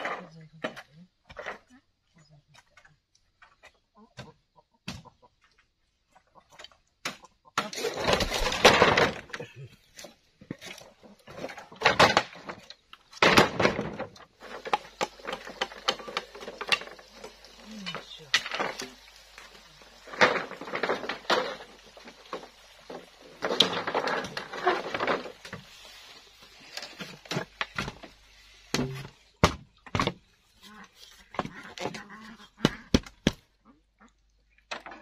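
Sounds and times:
bamboo poles scraping and rustling: 0.0 - 33.4
sharp hollow bamboo knocks: 28.7 - 30.2.

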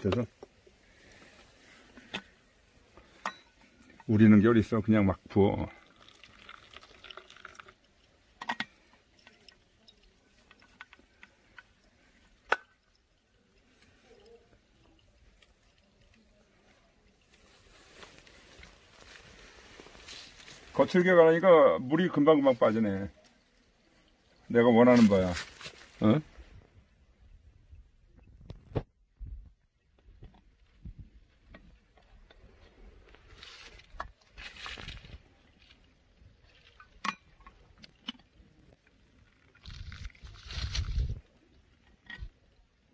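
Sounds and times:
coffee dripping: 0.0 - 25.8, 36.4 - 40.3
hot water pouring: 0.0 - 26.1.

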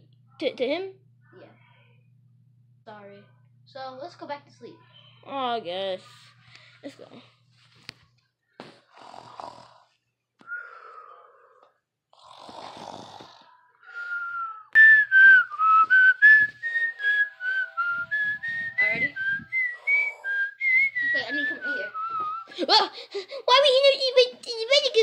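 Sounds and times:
person whistling a tune: 13.9 - 22.5.

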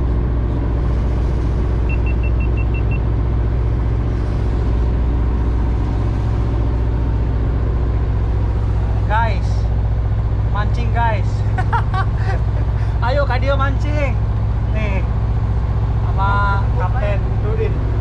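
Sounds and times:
boat engine humming: 0.0 - 18.0
short high-pitched beeps: 1.9 - 3.0.

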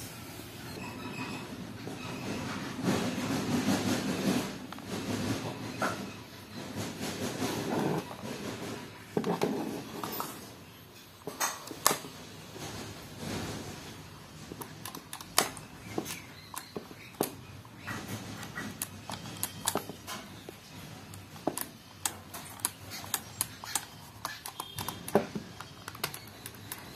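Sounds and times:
hands clicking on plastic and metal: 14.5 - 26.9.

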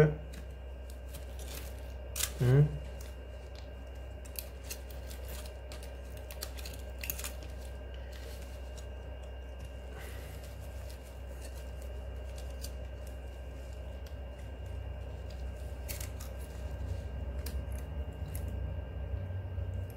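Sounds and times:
steady low hum: 0.0 - 19.9
knife cutting cactus spines: 0.3 - 7.7, 15.4 - 18.6.

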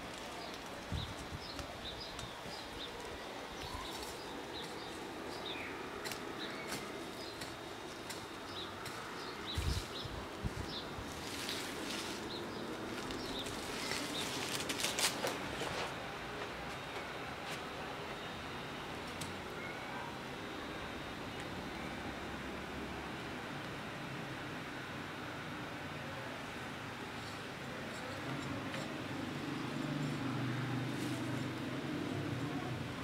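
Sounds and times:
small birds chirping: 0.0 - 14.9
wooden stick scraping soil: 11.1 - 15.9.

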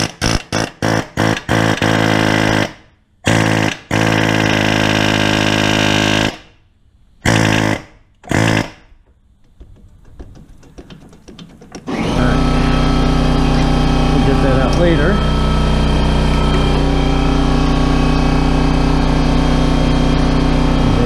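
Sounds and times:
pneumatic air hammer: 0.0 - 6.5, 7.2 - 9.0, 10.7 - 20.9.

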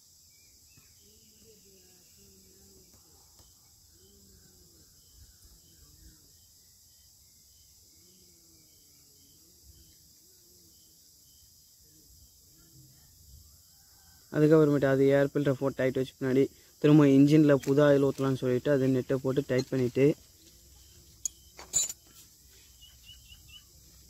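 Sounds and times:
cricket chirping faintly: 0.0 - 24.0.

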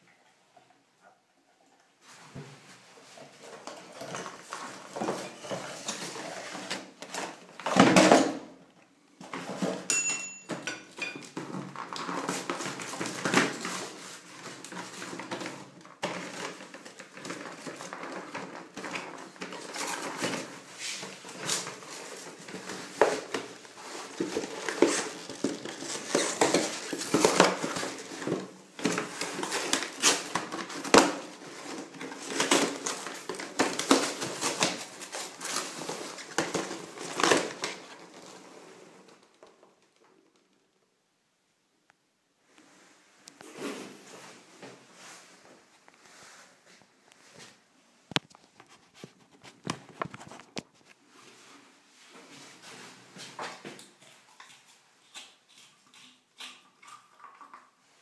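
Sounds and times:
cardboard box rustling and scraping: 3.0 - 7.7, 11.7 - 39.0.

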